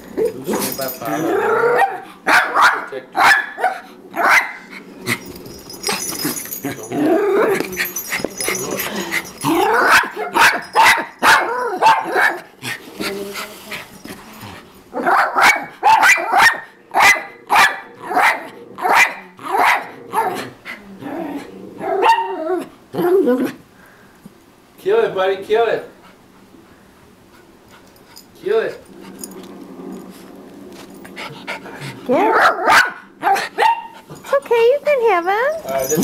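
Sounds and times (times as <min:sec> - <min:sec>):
dog barking: 0:01.7 - 0:04.7, 0:09.6 - 0:12.5, 0:15.0 - 0:20.4, 0:21.8 - 0:22.4, 0:32.2 - 0:34.0.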